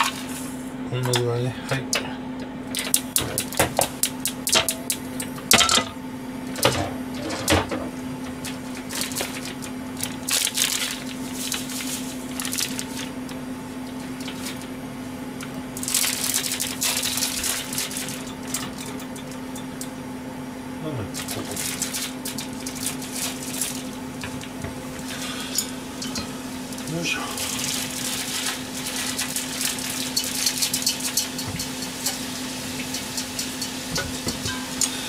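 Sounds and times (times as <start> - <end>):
steady low hum: 0.0 - 35.0
paper packet rustling: 8.8 - 13.2, 15.8 - 18.2, 26.8 - 30.7.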